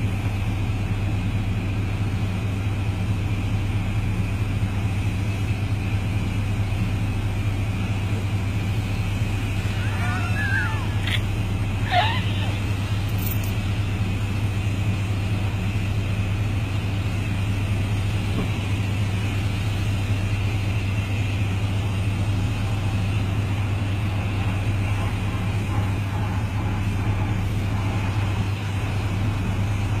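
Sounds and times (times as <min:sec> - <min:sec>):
motor humming: 0:06.8 - 0:24.0.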